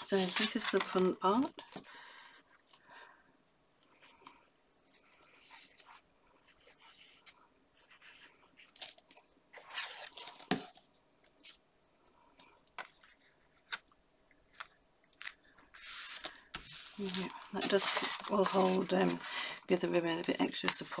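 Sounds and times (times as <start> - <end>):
hands smoothing paper: 15.7 - 19.9.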